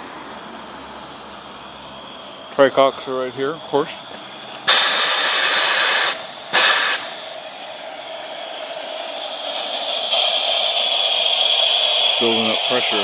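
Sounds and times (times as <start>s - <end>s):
steam hissing from boiler valves: 0.0s - 13.0s.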